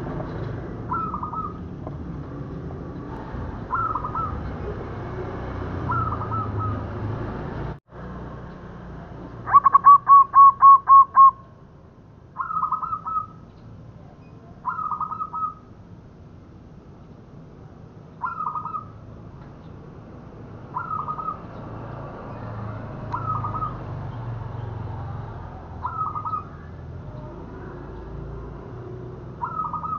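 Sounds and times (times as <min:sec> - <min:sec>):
dove cooing: 0:00.9 - 0:01.6, 0:03.7 - 0:04.8, 0:05.8 - 0:07.0, 0:09.5 - 0:11.4, 0:20.7 - 0:21.4, 0:23.2 - 0:23.8, 0:25.8 - 0:27.8, 0:29.4 - 0:29.9.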